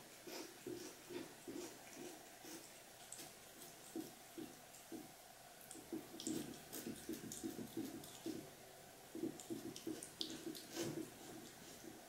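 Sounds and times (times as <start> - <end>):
cat licking plastic container: 5.7 - 8.5, 9.1 - 12.0.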